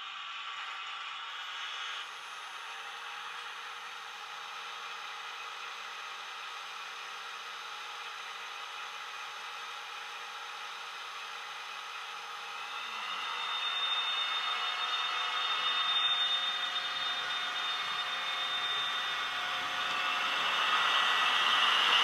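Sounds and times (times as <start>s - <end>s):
cooling fan whirring: 12.4s - 22.0s
diesel locomotive engine idling: 12.6s - 22.0s.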